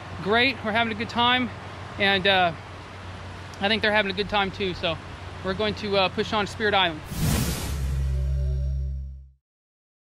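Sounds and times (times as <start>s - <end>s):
deep steady low tone: 7.7s - 9.4s.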